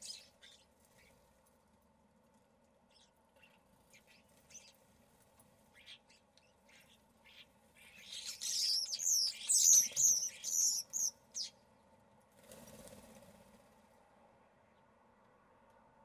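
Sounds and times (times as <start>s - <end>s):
starlings chirping: 5.7s - 11.5s
wings flapping: 12.4s - 13.8s.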